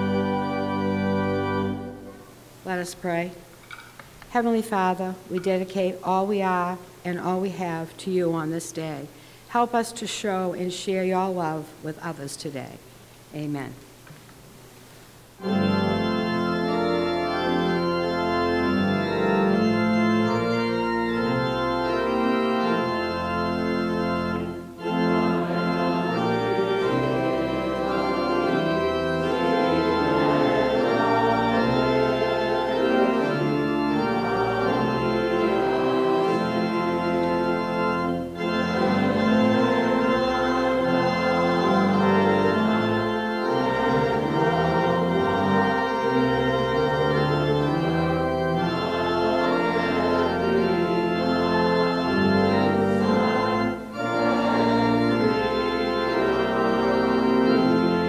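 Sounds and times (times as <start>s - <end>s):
church organ playing chords: 0.0s - 3.2s, 15.4s - 58.0s.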